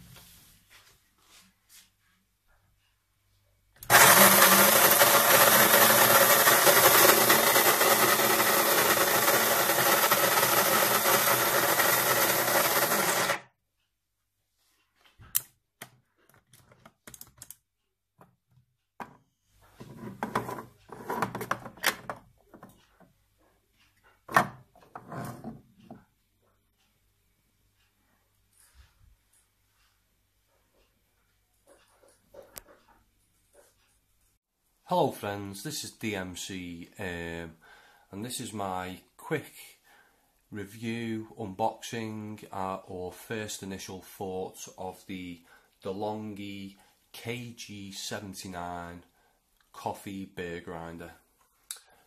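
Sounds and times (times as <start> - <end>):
electric coffee grinder grinding: 3.8 - 13.5.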